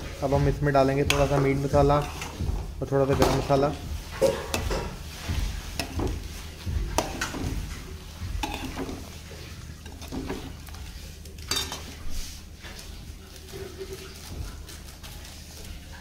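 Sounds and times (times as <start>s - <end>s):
metal spoon clinking on cookware: 3.2s - 5.0s, 5.8s - 6.2s, 7.0s - 7.5s, 8.4s - 9.2s, 11.4s - 12.0s.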